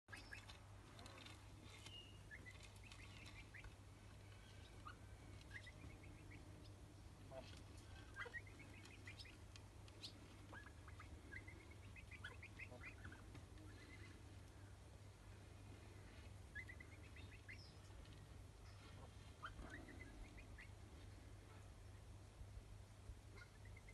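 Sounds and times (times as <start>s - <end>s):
bird chirps: 0.1s - 9.4s, 10.0s - 14.2s, 16.5s - 17.9s
low steady hum: 0.1s - 23.9s.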